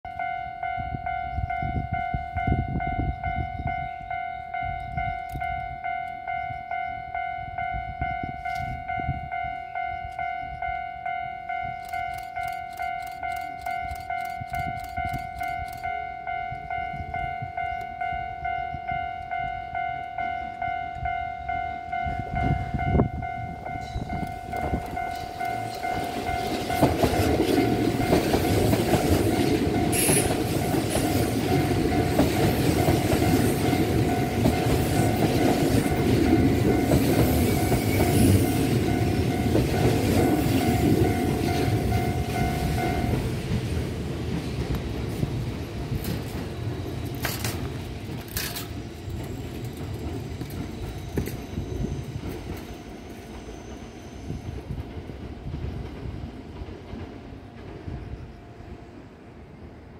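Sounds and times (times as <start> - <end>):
level crossing warning bell: 0.0 - 44.0, 45.7 - 54.8
train wheels running over rails: 11.4 - 59.4.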